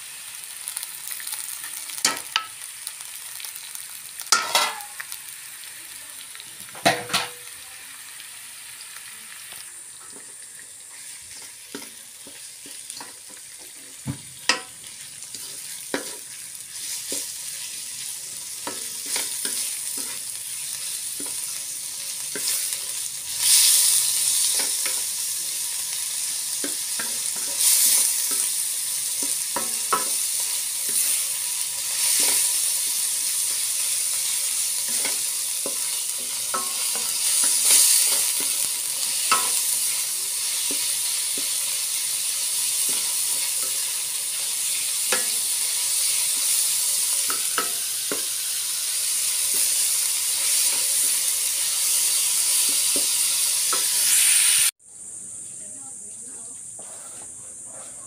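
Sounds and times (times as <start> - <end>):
meat sizzling in a wok: 0.0 - 55.2
utensils knocking against pan: 4.3 - 5.0, 6.8 - 7.4, 14.5 - 14.8, 36.5 - 38.5.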